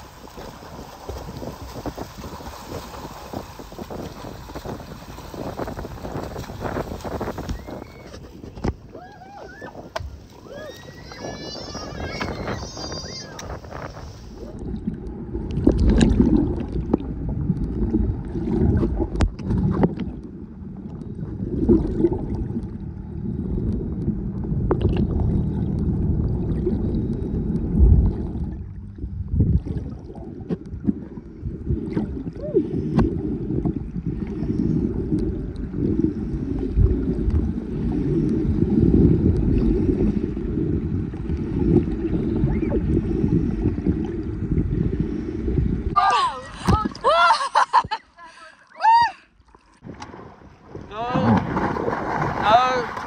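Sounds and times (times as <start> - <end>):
underwater rush of water: 0.0 - 53.0
gurgling bubbles: 10.4 - 47.0
underwater clicks: 13.3 - 13.8, 15.4 - 17.9, 18.7 - 22.7, 23.6 - 28.4.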